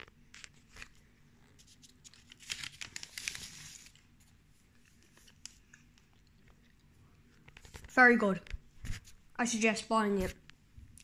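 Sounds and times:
paper wrapper crinkling: 0:00.3 - 0:06.3.

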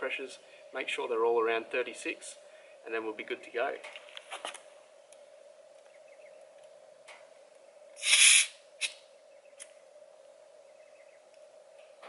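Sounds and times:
air hissing from tyre valve: 0:08.0 - 0:09.0.

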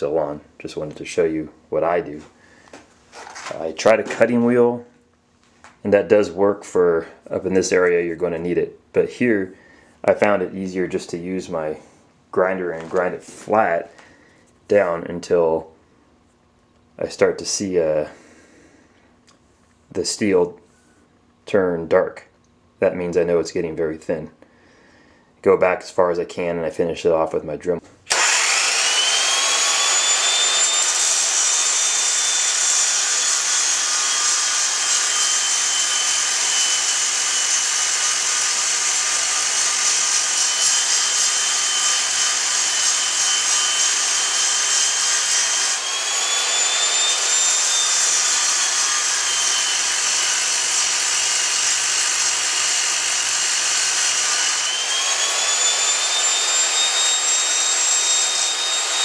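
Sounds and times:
angle grinder grinding metal: 0:28.1 - 0:59.0.

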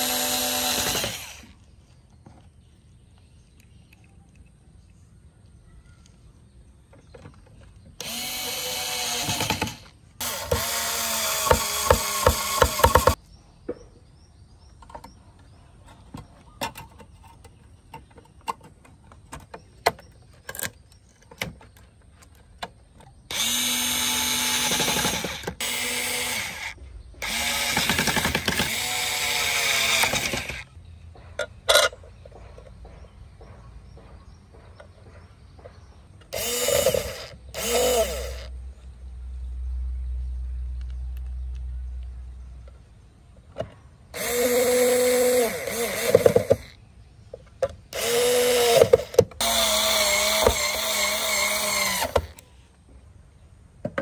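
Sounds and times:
electric screwdriver motor whirring: 0:00.0 - 0:01.5, 0:08.0 - 0:13.2, 0:23.3 - 0:30.6, 0:36.3 - 0:38.5, 0:44.2 - 0:46.8, 0:47.9 - 0:52.4.

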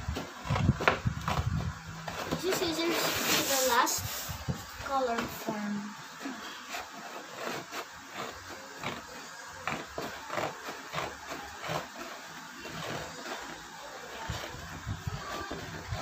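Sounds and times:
scissors cutting cardboard: 0:06.6 - 0:16.0.

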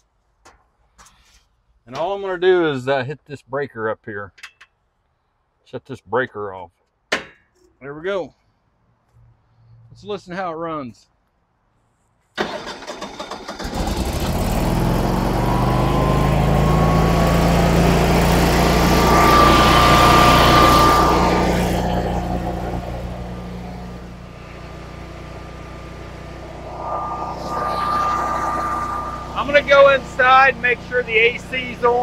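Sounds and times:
generator engine cranking and running: 0:12.4 - 0:23.9
thin steady whine: 0:15.3 - 0:31.7.

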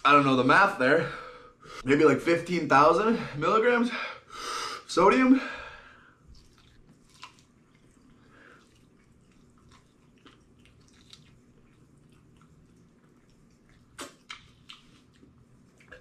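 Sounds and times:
wet chewing and gnawing: 0:06.2 - 0:16.0.

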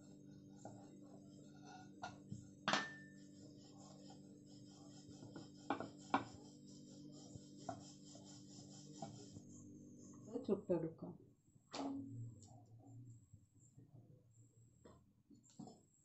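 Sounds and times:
rolling pin rolling dough: 0:00.0 - 0:09.6
steady low hum: 0:00.0 - 0:14.9
rolling pin knocking on stone: 0:05.7 - 0:06.3.

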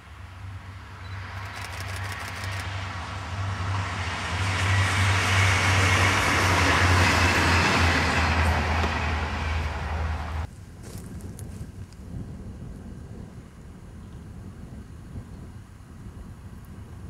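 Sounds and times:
diesel railcar passing by: 0:00.0 - 0:10.5.

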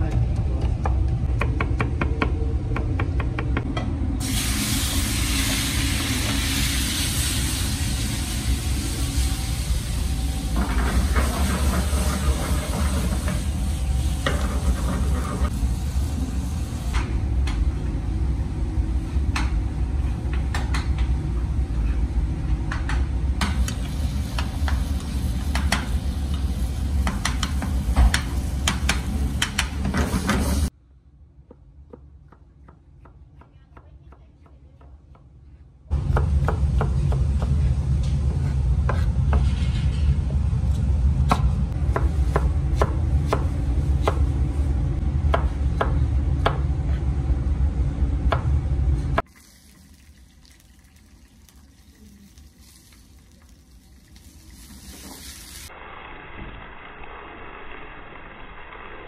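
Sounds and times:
tomatoes frying in pan: 0:49.2 - 0:55.7.

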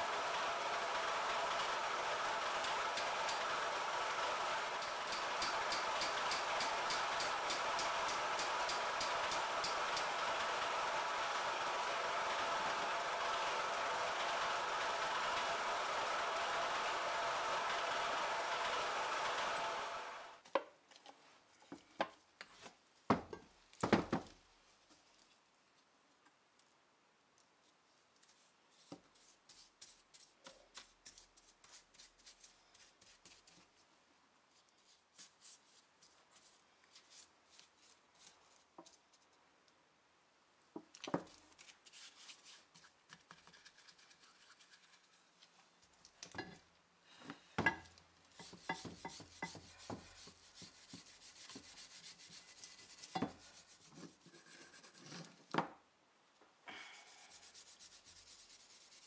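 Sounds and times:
brush scrubbing metal: 0:48.3 - 0:55.2, 0:57.0 - 0:59.0.

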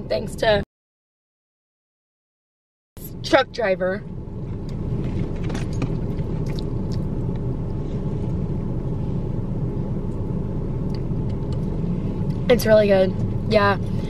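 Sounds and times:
car engine idling: 0:03.0 - 0:14.0.

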